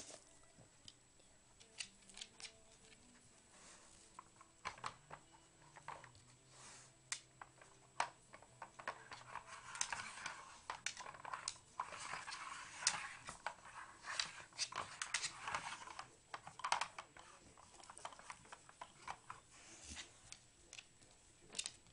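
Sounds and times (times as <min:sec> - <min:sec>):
scraping and rustling: 0:07.6 - 0:21.9.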